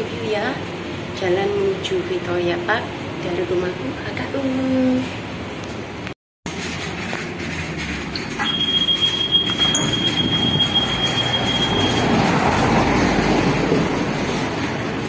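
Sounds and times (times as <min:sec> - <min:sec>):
street traffic noise: 0:00.0 - 0:15.0
minibus passing: 0:09.0 - 0:15.0.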